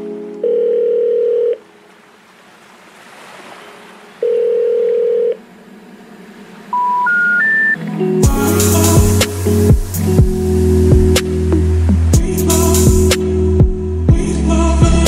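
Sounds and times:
telephone line beeps: 0:00.4 - 0:01.6, 0:04.2 - 0:05.4, 0:06.7 - 0:07.8
three rising telephone tones: 0:06.7 - 0:07.8.

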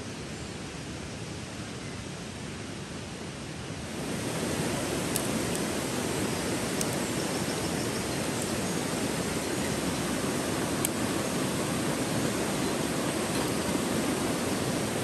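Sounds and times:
river rushing over stones: 0:02.9 - 0:15.0
faint clicks: 0:05.1 - 0:05.7, 0:06.7 - 0:07.0, 0:10.8 - 0:11.0.

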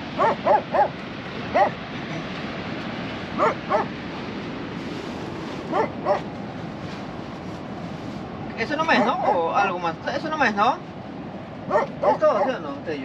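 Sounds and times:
steady background rush: 0:00.0 - 0:13.0
dog barking: 0:00.2 - 0:01.8, 0:03.4 - 0:03.9, 0:05.7 - 0:06.3, 0:09.0 - 0:09.4, 0:11.7 - 0:12.6.

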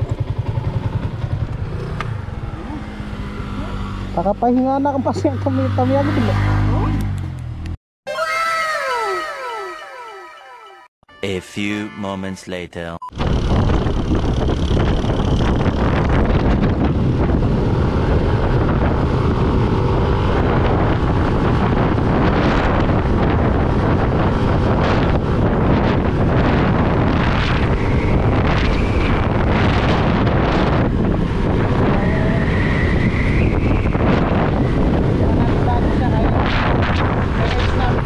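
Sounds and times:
motorcycle engine: 0:00.0 - 0:07.8, 0:13.2 - 0:36.3
wind buffeting microphone: 0:13.2 - 0:38.0.

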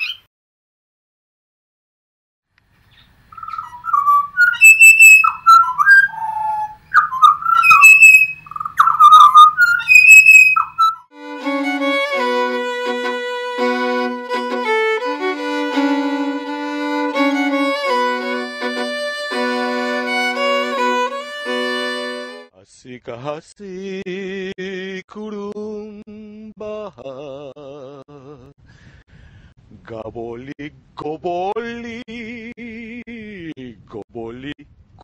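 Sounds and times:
birds singing fluting whistles: 0:02.9 - 0:11.0
violin music: 0:11.1 - 0:22.5.

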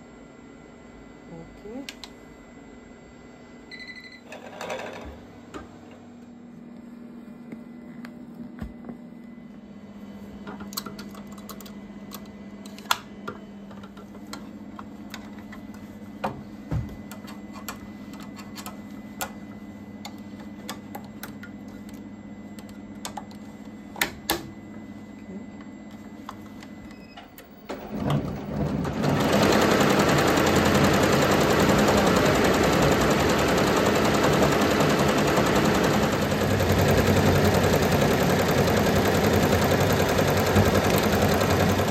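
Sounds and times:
steady low hum: 0:05.1 - 0:27.8.

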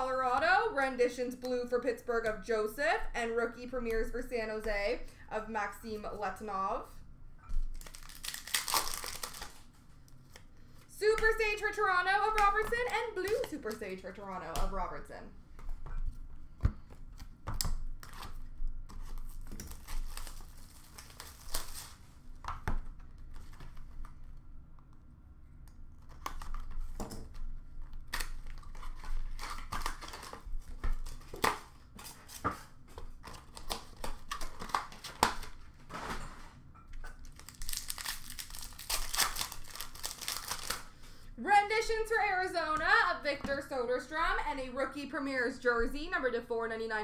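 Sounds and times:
pack wrappers crinkling: 0:07.6 - 0:10.5, 0:17.2 - 0:22.1, 0:27.8 - 0:32.4, 0:37.1 - 0:41.0
wrapping tearing: 0:07.6 - 0:10.5, 0:17.2 - 0:22.2, 0:27.8 - 0:32.4, 0:37.2 - 0:41.0.

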